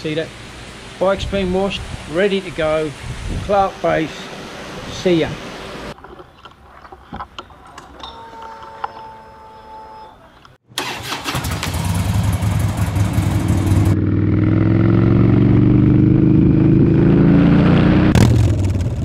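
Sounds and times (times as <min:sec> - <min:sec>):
wind noise: 0:01.2 - 0:03.7
motorcycle engine accelerating: 0:10.8 - 0:19.0.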